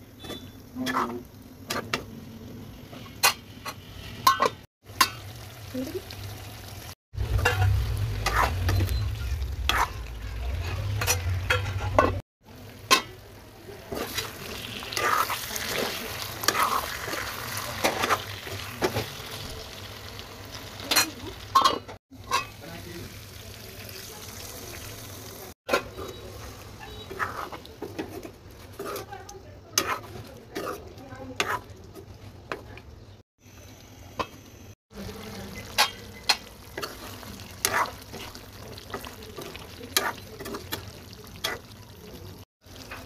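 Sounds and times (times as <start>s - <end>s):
spoon scraping a pan: 0.2s - 2.1s, 7.3s - 12.2s, 13.9s - 19.0s, 25.7s - 31.7s, 35.6s - 41.7s
curry sizzling in a pan: 0.2s - 29.2s, 33.1s - 43.0s.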